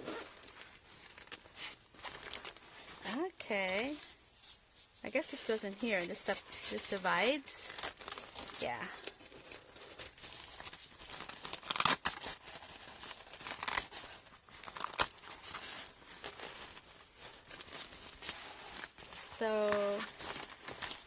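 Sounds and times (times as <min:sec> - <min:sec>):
sharp scrapes of fabric bag: 0:00.0 - 0:00.6, 0:05.4 - 0:21.0
nylon bag rustling and crinkling: 0:00.0 - 0:21.0.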